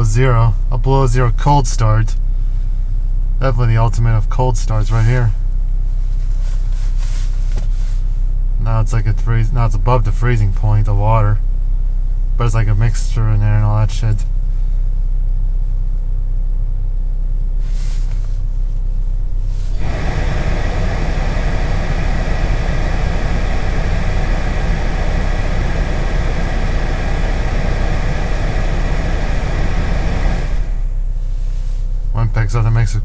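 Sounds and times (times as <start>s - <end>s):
car engine idling: 14.3s - 33.0s
loud steady rushing noise: 19.5s - 31.0s.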